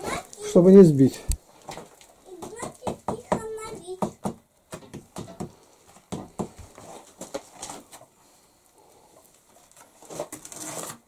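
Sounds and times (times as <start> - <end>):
trowel scraping and knocking: 9.8 - 11.0.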